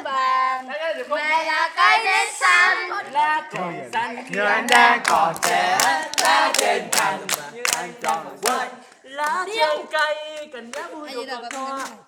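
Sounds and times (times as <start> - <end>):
group singing and chanting: 0.0 - 12.0
rhythmic hand-clapping: 3.0 - 12.0.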